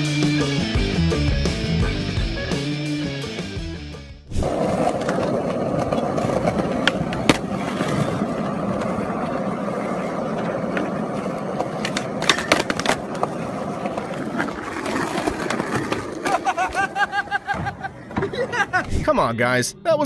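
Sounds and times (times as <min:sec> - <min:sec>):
skateboard wheels rolling: 0:04.3 - 0:18.9
skateboard clacks: 0:04.4 - 0:18.7.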